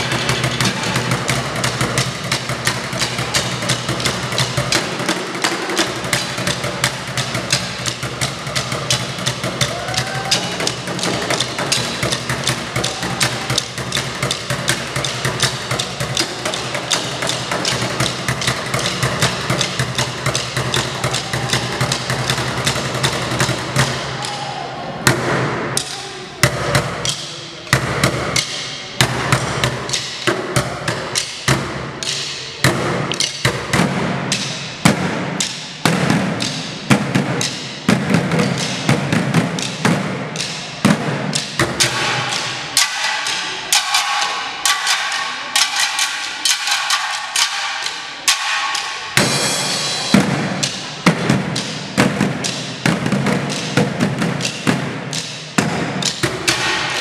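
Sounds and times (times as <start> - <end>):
percussion ensemble drumming: 0.0 - 57.0.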